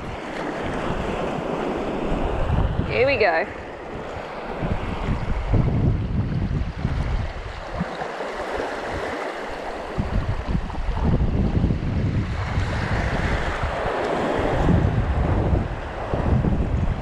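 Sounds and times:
small waves washing over rocks: 0:00.0 - 0:02.4, 0:06.4 - 0:15.0
wind buffeting microphone: 0:00.0 - 0:17.0.

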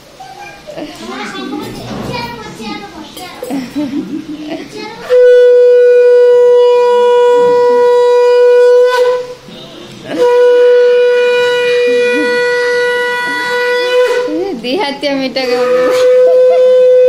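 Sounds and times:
conch shell blasts: 0:05.0 - 0:09.4, 0:10.1 - 0:14.4, 0:15.5 - 0:17.0.

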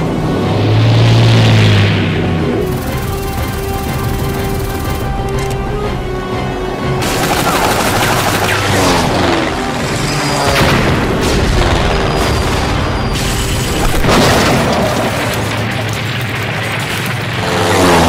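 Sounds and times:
dramatic music: 0:00.0 - 0:18.0
machine-gun fire: 0:02.7 - 0:05.2, 0:07.0 - 0:09.7
explosions: 0:10.4 - 0:17.4.

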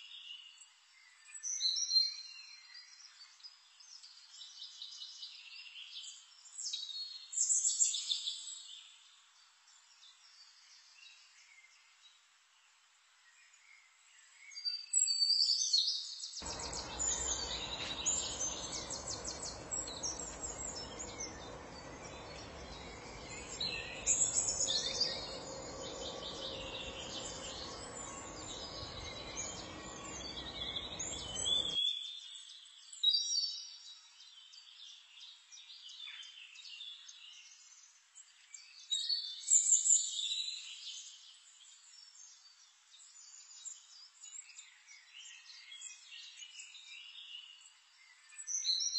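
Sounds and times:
low rushing noise: 0:16.4 - 0:31.8
small birds chirping: 0:16.4 - 0:31.8.

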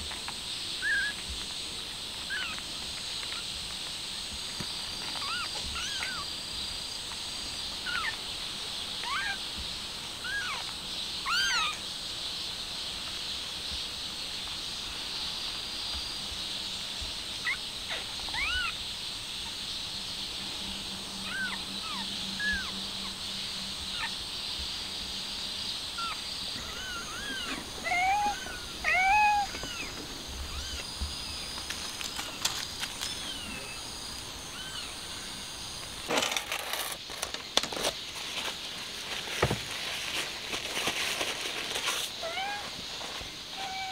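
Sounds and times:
steady high hiss: 0:00.0 - 0:43.9
kittens mewing: 0:05.2 - 0:06.2, 0:09.0 - 0:09.4, 0:17.4 - 0:18.8, 0:21.2 - 0:22.7, 0:26.0 - 0:31.0, 0:42.2 - 0:42.8.

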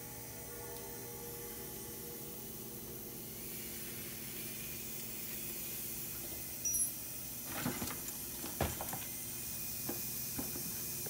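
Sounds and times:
pump humming: 0:00.0 - 0:11.0
high metallic ping: 0:06.6 - 0:07.0.

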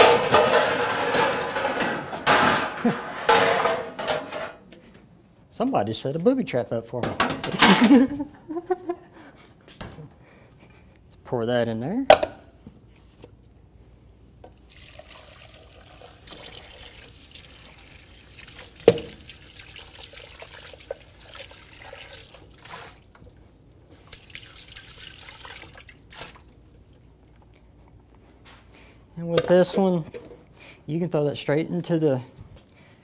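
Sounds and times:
tap running into metal sink: 0:18.8 - 0:19.3.

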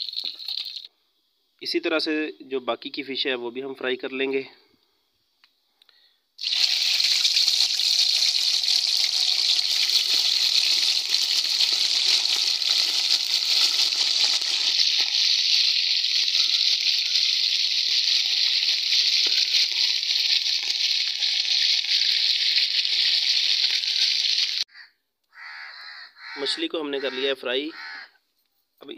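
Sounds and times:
fish sizzling in hot fat: 0:00.0 - 0:00.9, 0:06.4 - 0:24.6.

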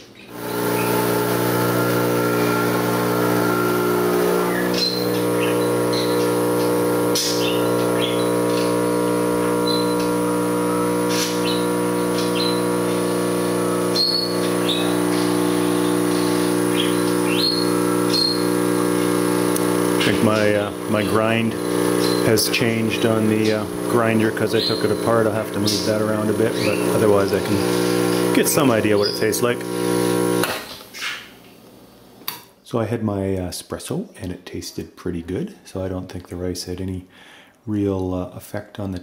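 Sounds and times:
espresso machine pump humming: 0:00.3 - 0:30.6.

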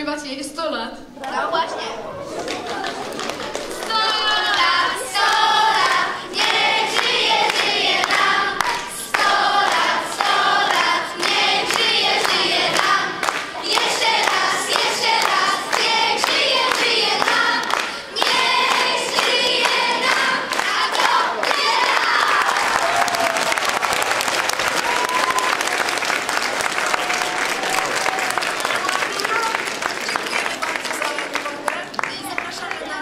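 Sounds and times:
children singing together: 0:02.0 - 0:22.7
hands clapping along: 0:02.4 - 0:33.0.

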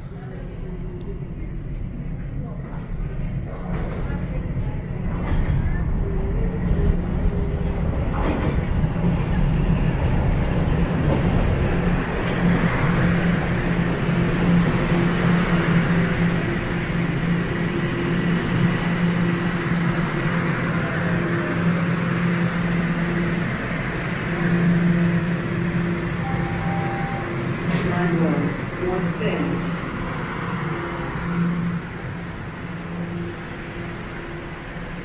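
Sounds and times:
subway train rumbling: 0:00.0 - 0:35.0
high wheel squeal: 0:18.4 - 0:21.5.

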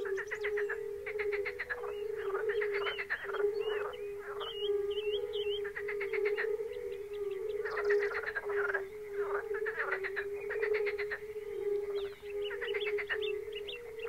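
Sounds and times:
chorus of toads calling: 0:00.0 - 0:14.0
fast rattling toad calls: 0:07.6 - 0:11.2.

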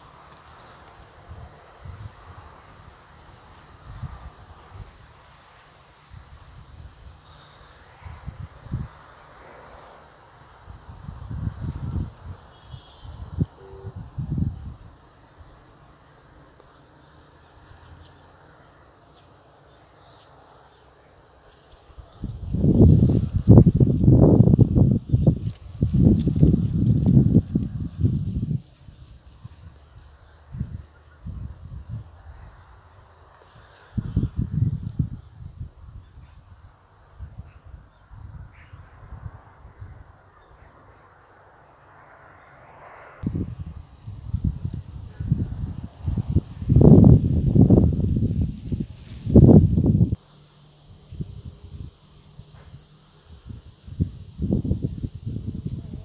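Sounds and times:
insects chirring: 0:00.0 - 0:56.0
wind on microphone: 0:07.9 - 0:09.8, 0:10.5 - 0:15.7, 0:22.0 - 0:33.0, 0:33.9 - 0:40.3, 0:43.2 - 0:50.2, 0:51.0 - 0:56.0.

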